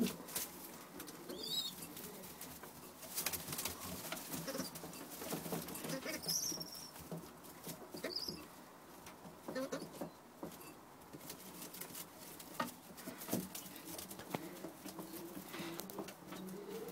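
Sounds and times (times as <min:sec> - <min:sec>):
pigeons cooing softly: 0:00.0 - 0:05.1, 0:07.8 - 0:08.8, 0:12.9 - 0:16.9
taps and rustles in straw: 0:00.0 - 0:16.7.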